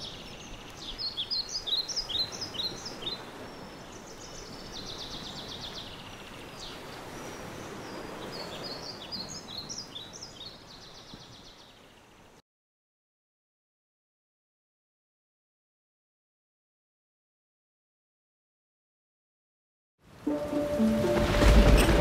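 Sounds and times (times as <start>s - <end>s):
small birds chirping: 0.0s - 12.4s.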